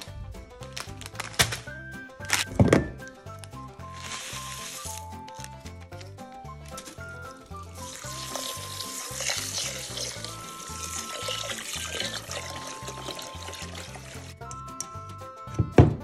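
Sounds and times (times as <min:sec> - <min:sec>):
background music with a beat: 0:00.0 - 0:08.6, 0:14.3 - 0:16.0
tap water pouring into a pot: 0:07.7 - 0:14.4.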